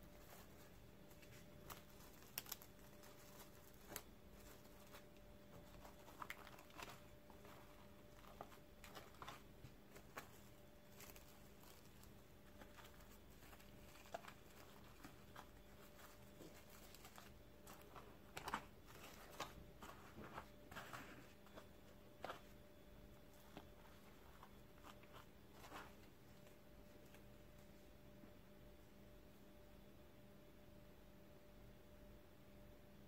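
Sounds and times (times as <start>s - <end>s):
cling film crinkling: 0.0s - 22.6s
faint steady hum: 0.0s - 33.0s.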